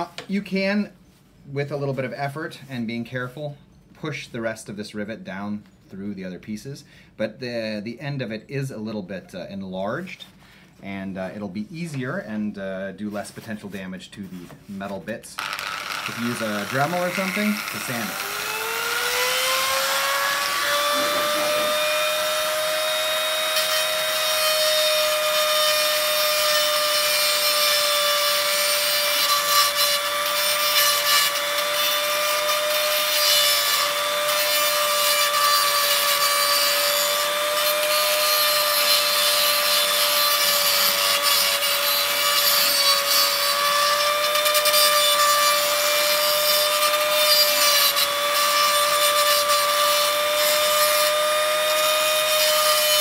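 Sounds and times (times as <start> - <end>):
rotary tool grinding metal: 15.4 - 53.0.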